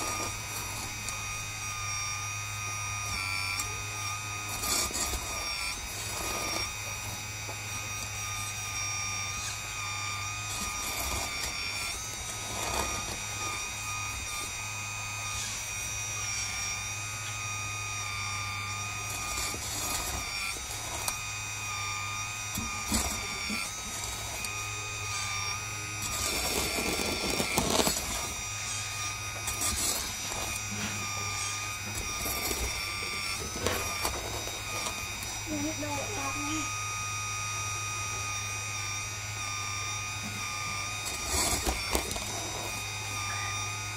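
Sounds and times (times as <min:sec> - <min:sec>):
hydraulic pump whining: 0:00.0 - 0:43.9.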